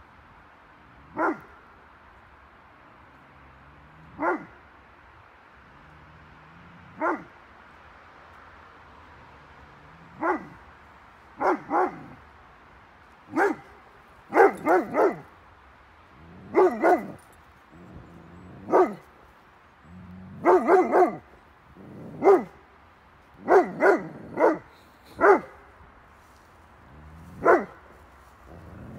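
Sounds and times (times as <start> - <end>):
dog barking: 1.1 - 1.5, 4.2 - 4.6, 6.9 - 7.3, 10.2 - 10.6, 11.4 - 12.2, 13.3 - 15.3, 16.4 - 17.2, 18.5 - 19.1, 20.4 - 21.3, 22.0 - 22.6, 23.4 - 25.7, 27.4 - 27.8.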